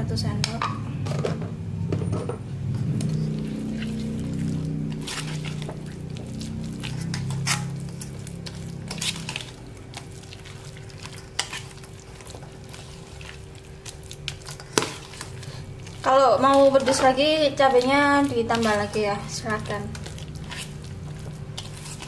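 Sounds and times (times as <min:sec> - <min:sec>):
spoon scraping metal bowl: 0:03.0 - 0:09.6, 0:14.4 - 0:22.0.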